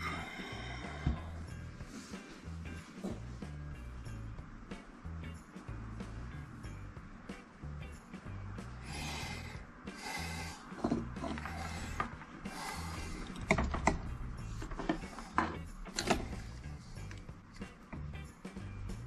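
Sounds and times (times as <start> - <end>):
background music: 0.0 - 19.0
tools scraping on workbench: 10.8 - 12.2
tools clicking and tapping: 13.2 - 16.4.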